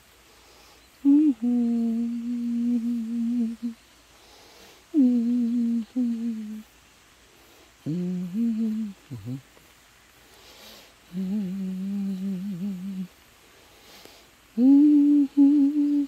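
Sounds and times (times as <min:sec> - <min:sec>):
person humming: 0:01.0 - 0:03.8, 0:04.9 - 0:06.7, 0:07.8 - 0:09.6, 0:11.0 - 0:13.2, 0:14.5 - 0:16.0.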